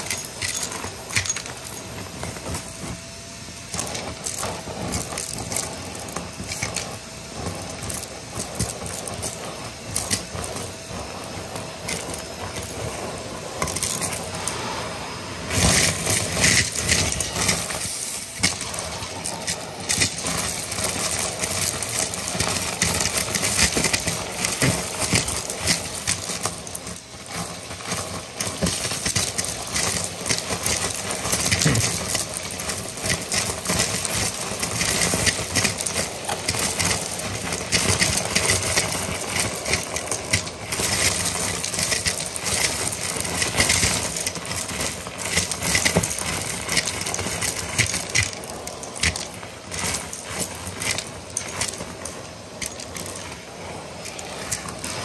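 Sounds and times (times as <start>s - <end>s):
debris rattling up vacuum hose: 0.0s - 55.0s
vacuum cleaner motor suction: 0.0s - 55.0s.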